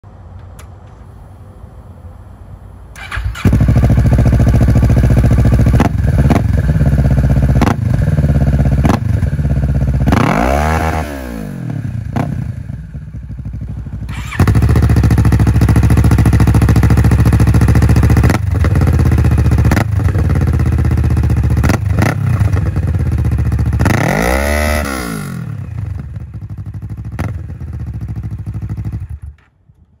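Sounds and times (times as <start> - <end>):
motorcycle engine idling: 3.0 - 10.1, 12.0 - 24.0, 25.5 - 29.4
motorcycle engine revving: 3.0 - 29.4.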